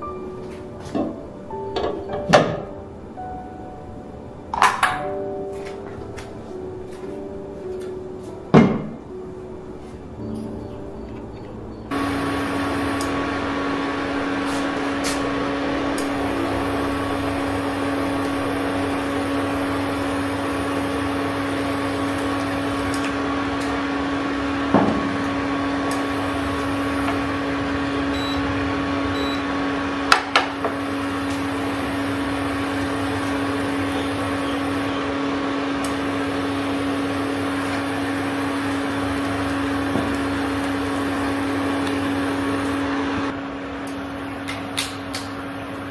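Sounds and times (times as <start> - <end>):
high-pitched whine: 11.7 - 45.9
induction cooktop humming: 11.9 - 45.9.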